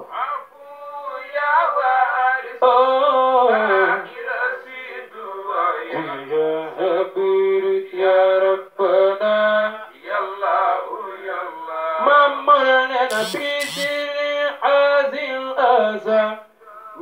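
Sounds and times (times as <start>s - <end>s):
man chanting into microphone: 13.1s - 14.0s.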